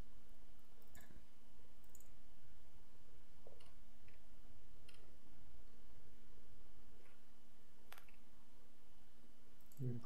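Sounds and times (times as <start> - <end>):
steady low hum: 0.0 - 10.0
computer mouse clicks: 0.8 - 1.2, 1.8 - 2.2, 4.8 - 5.1, 9.6 - 10.0.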